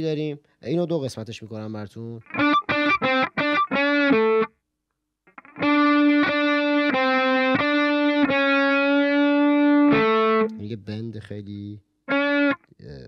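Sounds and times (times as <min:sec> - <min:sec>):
distorted electric guitar: 0:02.3 - 0:04.5, 0:05.3 - 0:10.6, 0:12.1 - 0:12.7.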